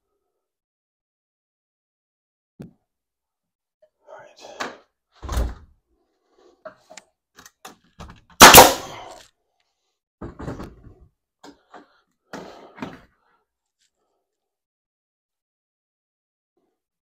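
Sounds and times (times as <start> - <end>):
wooden framing knocking and clattering: 10.2 - 11.0.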